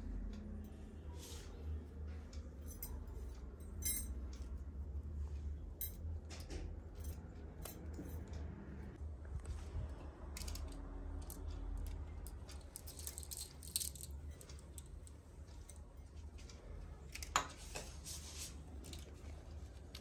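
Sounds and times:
low steady hum: 0:00.0 - 0:20.0
metal bangles clinking: 0:02.5 - 0:04.6, 0:05.7 - 0:06.1, 0:06.8 - 0:08.3, 0:10.4 - 0:16.0.

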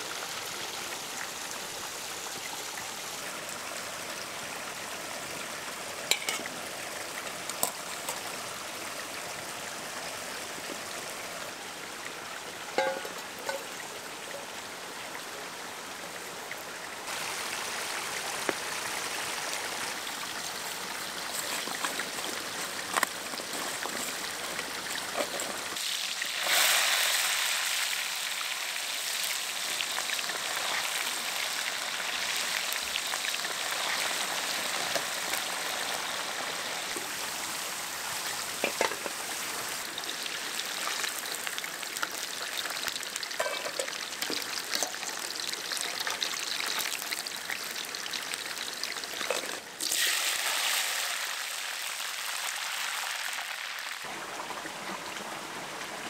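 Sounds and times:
creek water running: 0:00.0 - 0:56.0
potatoes sizzling in hot oil: 0:06.0 - 0:11.3, 0:12.7 - 0:14.6, 0:17.1 - 0:54.1.

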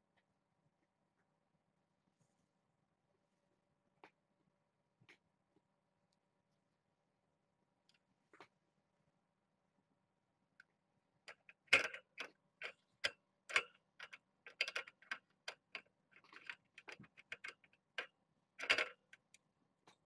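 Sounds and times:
cats clicking and tapping: 0:11.3 - 0:20.0.

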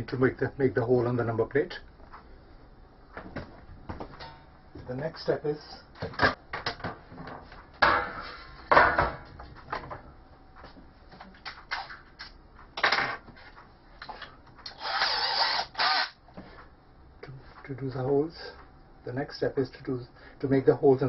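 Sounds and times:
cordless drill handling noise: 0:14.7 - 0:16.2.

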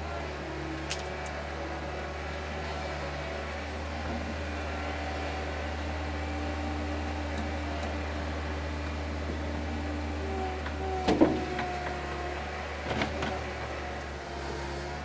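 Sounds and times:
loader engine idling: 0:00.0 - 0:15.0.

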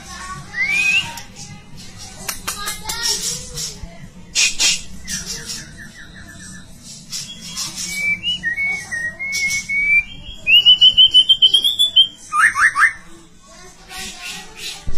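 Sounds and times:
bird singing: 0:05.0 - 0:13.0.

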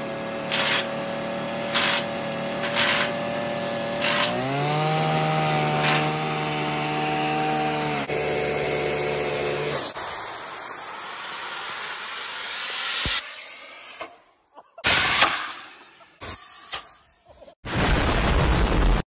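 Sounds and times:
machine drone: 0:00.0 - 0:14.1
turbo whine climbing in pitch: 0:08.0 - 0:13.2.

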